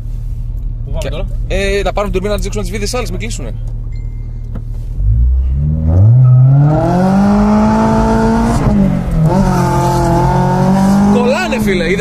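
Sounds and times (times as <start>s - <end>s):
car engine revving hard: 5.0s - 12.0s.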